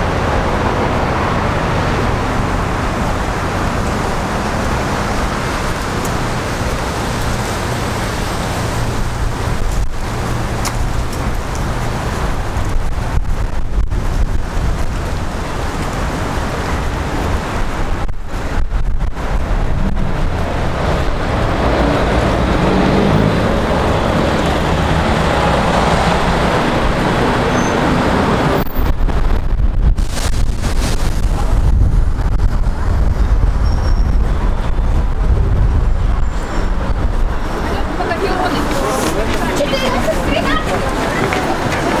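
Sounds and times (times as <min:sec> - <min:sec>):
cars passing in rumble: 0:00.0 - 0:42.0
loud vehicle passing: 0:15.9 - 0:28.6.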